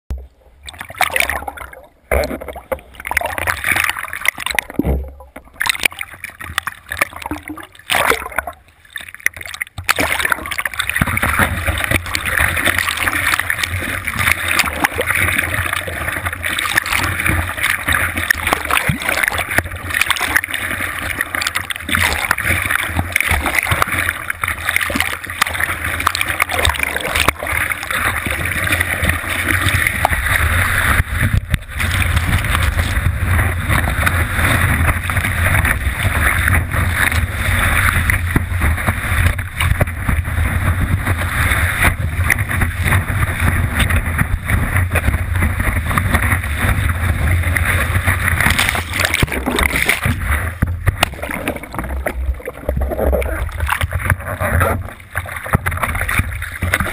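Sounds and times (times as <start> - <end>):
muffled underwater sound: 0.1 - 56.9
surf water rushing and splashing: 0.1 - 56.9
deep rumble: 27.0 - 56.9.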